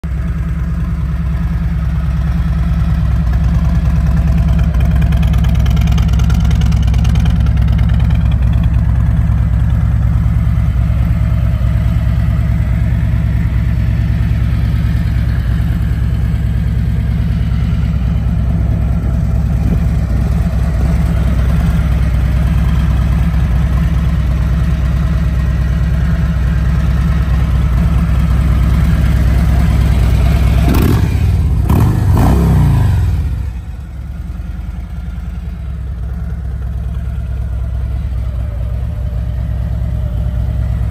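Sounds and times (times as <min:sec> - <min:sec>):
motorcycle engine idling: 0:00.0 - 0:40.9
motorcycle engine revving: 0:27.0 - 0:34.1.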